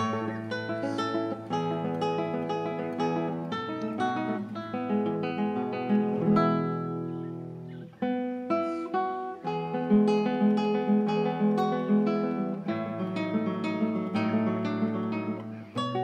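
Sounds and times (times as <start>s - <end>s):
fingerpicked acoustic guitar: 0.0s - 16.0s.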